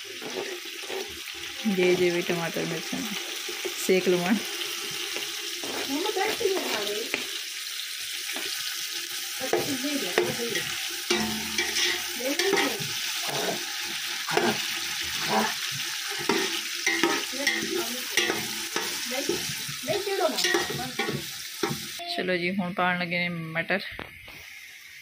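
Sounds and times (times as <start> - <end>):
metal spoon scraping a pot: 0.0 - 2.1, 9.5 - 21.9
vegetables sizzling in hot oil: 0.0 - 22.9, 24.2 - 25.0.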